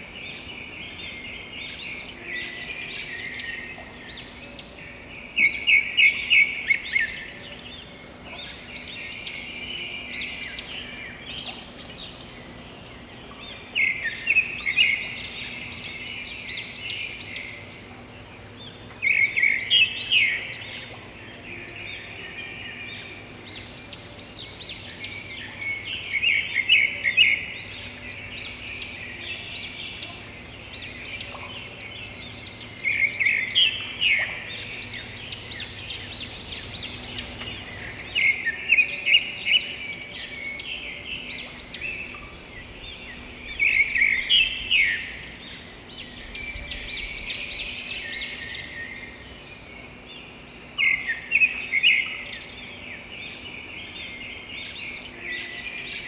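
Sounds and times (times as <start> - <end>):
small birds chirping and twittering: 0.0 - 56.0.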